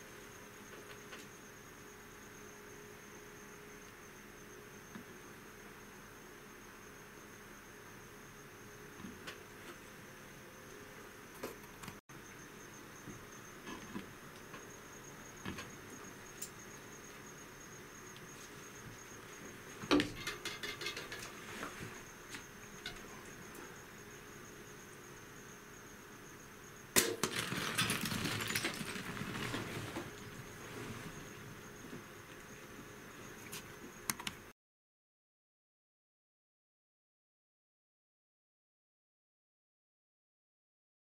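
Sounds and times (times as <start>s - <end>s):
high insect drone: 0.0s - 34.5s
loud sharp crack: 27.0s - 27.6s
rattling: 27.2s - 30.2s
loud scrambling noise: 27.3s - 30.2s.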